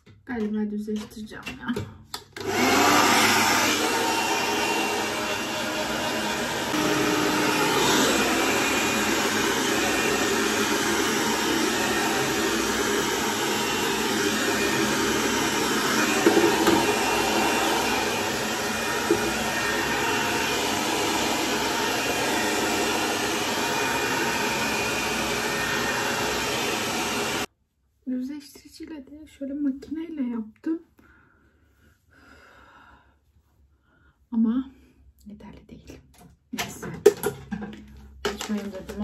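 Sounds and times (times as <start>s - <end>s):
hair dryer blowing: 2.4s - 27.5s, 38.3s - 39.0s.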